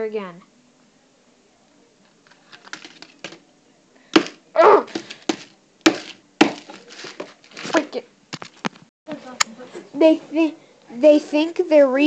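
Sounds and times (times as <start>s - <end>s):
phone handling clicks and rustles: 2.2s - 3.4s.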